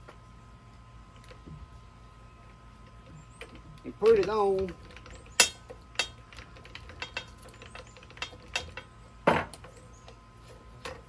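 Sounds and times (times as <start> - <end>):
metal clicks and clanks: 2.8 - 10.2, 10.8 - 11.0.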